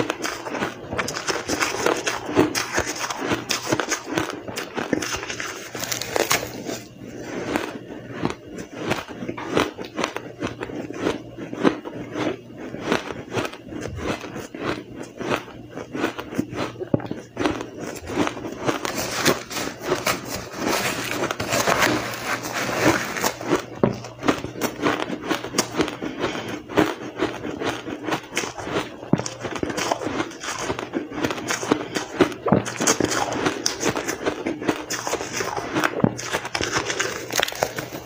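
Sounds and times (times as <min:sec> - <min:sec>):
crushed ice being chewed: 0:00.0 - 0:38.0.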